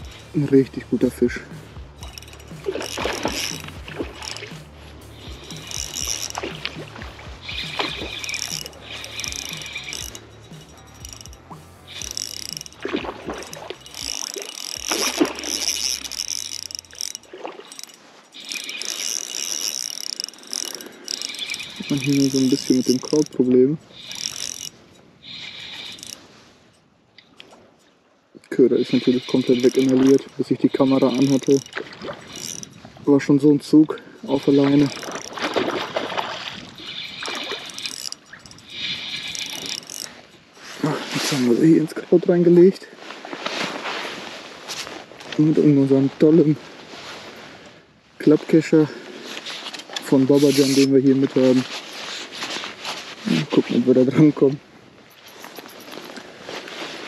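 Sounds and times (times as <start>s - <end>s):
fishing reel rattling and clicking: 0.0s - 42.8s, 48.3s - 57.0s
fish splashing at water surface: 2.0s - 19.4s, 34.8s - 40.2s.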